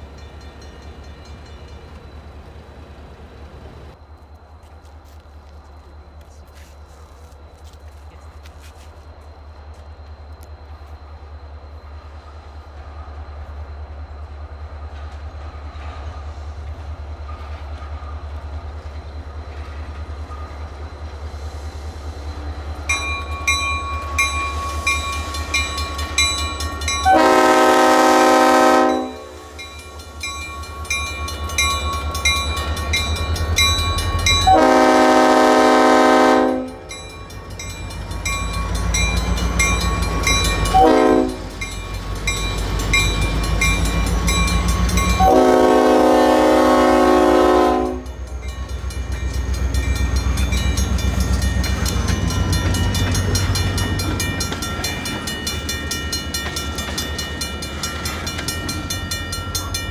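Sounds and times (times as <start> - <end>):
crossing bell ringing: 0.0 - 2.4, 22.5 - 59.9
diesel locomotive engine rumble: 0.0 - 59.9
train horn blasts: 27.0 - 29.6, 34.4 - 36.9, 40.7 - 41.6, 45.1 - 48.2.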